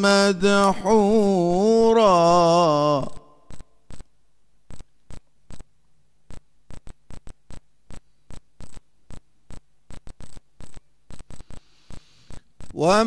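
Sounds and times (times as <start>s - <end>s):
irregular sharp clicks: 0.0s - 1.3s, 3.1s - 4.1s, 4.7s - 5.7s, 6.3s - 12.8s.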